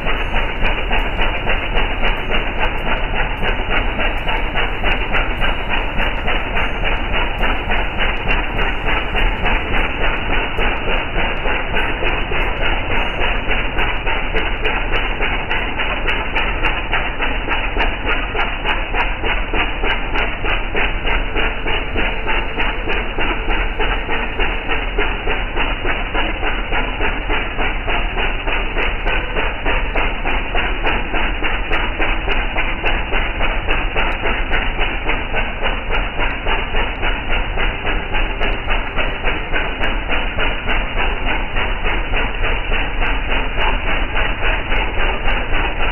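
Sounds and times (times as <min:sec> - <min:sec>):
boat engine chugging: 0:00.0 - 0:45.9.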